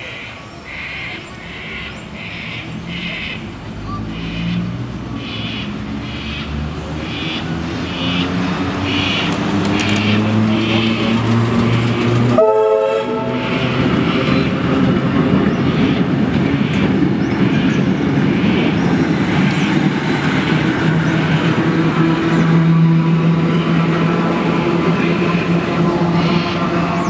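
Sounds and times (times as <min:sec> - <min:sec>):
train motor hum: 0:06.7 - 0:27.0
train warning blast: 0:10.0 - 0:14.5.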